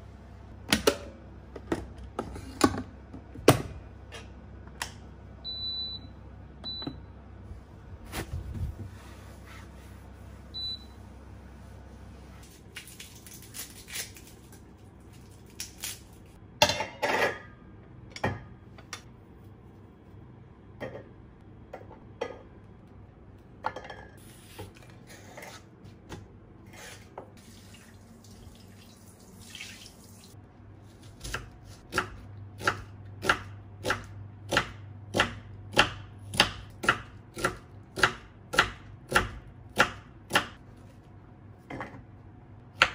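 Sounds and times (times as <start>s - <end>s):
knife slicing onion on wooden board: 31.0s - 40.6s.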